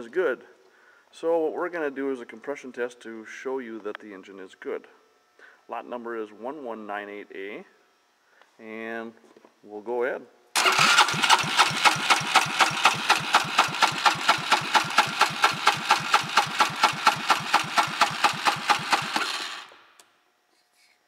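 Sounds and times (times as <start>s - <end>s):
engine cranking without firing: 10.6s - 19.8s.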